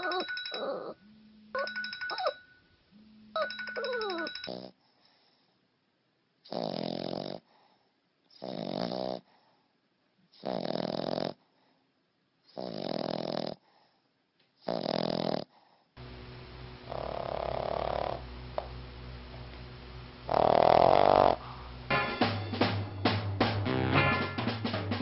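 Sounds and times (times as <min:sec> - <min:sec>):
dog snoring loudly: 0:06.5 - 0:07.5, 0:08.4 - 0:09.3, 0:10.4 - 0:11.4, 0:12.5 - 0:13.6, 0:14.6 - 0:15.6, 0:16.8 - 0:18.3, 0:20.2 - 0:21.7
steady low hum: 0:16.0 - 0:23.8.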